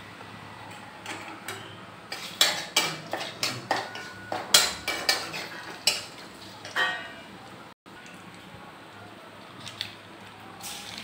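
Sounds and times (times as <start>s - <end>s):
metal spatula scraping metal pan: 1.5s - 6.1s.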